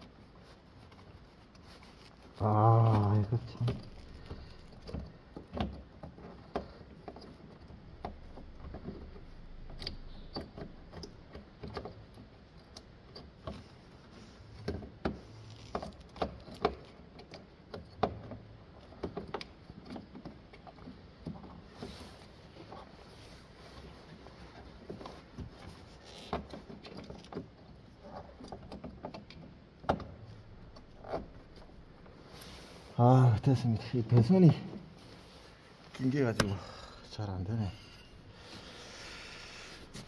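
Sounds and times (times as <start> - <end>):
clicks and rattles of car parts: 3.1 - 23.0, 24.2 - 32.6.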